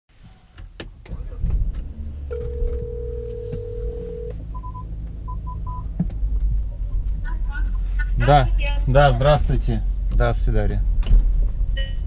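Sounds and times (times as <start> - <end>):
low rumble: 1.0 - 12.0
telephone ringing tone: 2.3 - 4.4.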